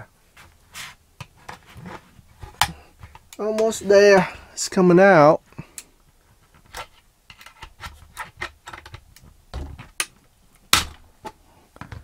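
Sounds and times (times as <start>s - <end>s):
plastic cover prying clicks and snaps: 7.3s - 11.0s.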